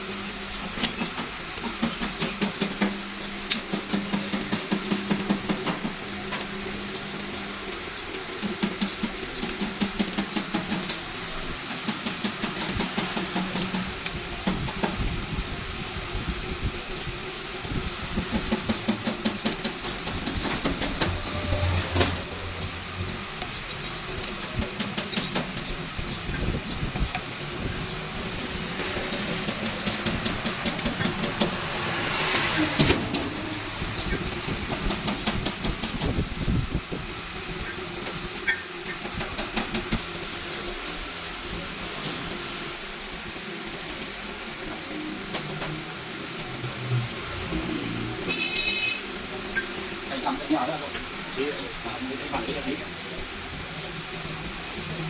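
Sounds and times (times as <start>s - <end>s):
steady mechanical hum: 0.0s - 55.0s.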